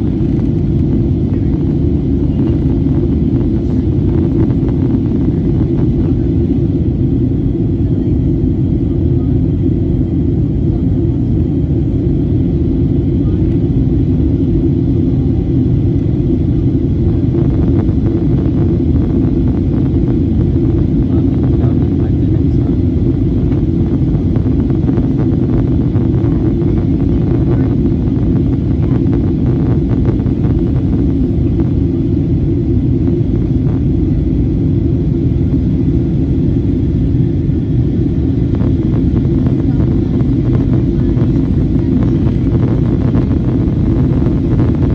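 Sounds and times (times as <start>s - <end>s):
airliner cabin rumble: 0.0s - 44.9s.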